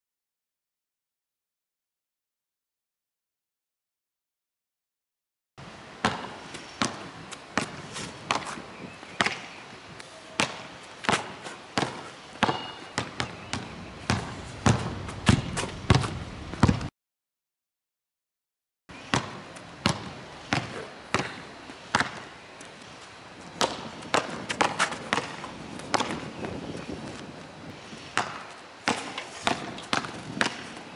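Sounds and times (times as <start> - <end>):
basketball bouncing on asphalt: 6.0 - 9.6, 10.4 - 16.9, 19.0 - 22.3, 23.5 - 27.3, 28.1 - 30.8.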